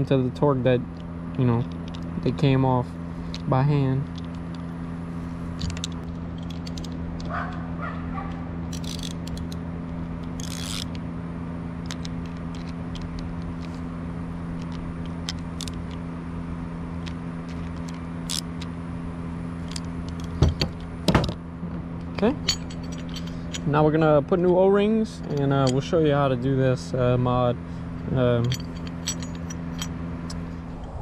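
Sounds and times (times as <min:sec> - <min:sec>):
steady low hum: 0:00.0 - 0:31.0
small metal parts clicking: 0:00.9 - 0:02.6, 0:03.2 - 0:04.8, 0:05.5 - 0:11.0, 0:11.8 - 0:16.1, 0:17.0 - 0:18.8, 0:19.6 - 0:21.4, 0:22.0 - 0:27.2, 0:28.0 - 0:31.0
metal parts scraping: 0:03.1 - 0:07.8, 0:08.7 - 0:11.0, 0:11.8 - 0:16.0, 0:17.0 - 0:18.8, 0:19.5 - 0:31.0.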